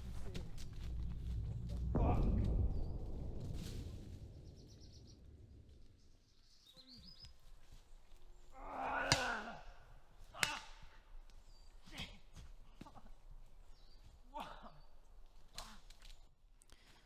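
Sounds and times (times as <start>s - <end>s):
small birds chirping: 4.0s - 9.3s, 11.1s - 15.8s.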